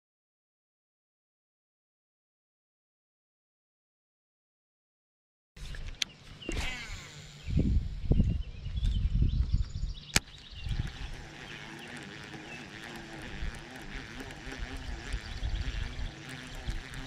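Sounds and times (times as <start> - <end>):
sharp click: 10.1 - 10.5
fishing reel gears whirring: 10.6 - 17.0.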